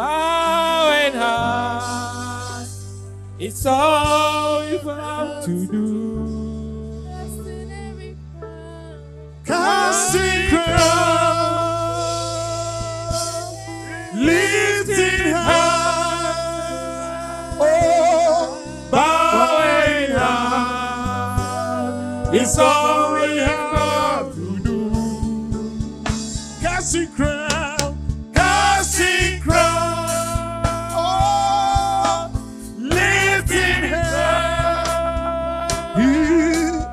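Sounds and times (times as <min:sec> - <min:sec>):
sustained accompaniment chords: 0:00.0 - 0:36.9
person singing with vibrato: 0:09.5 - 0:36.9.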